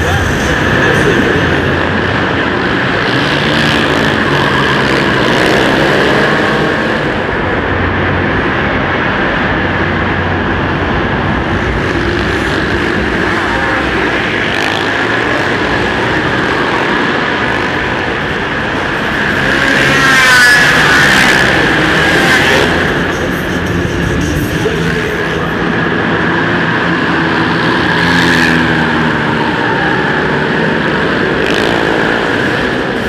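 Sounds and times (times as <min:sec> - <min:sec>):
quad bike engines revving: 0:00.0 - 0:33.0.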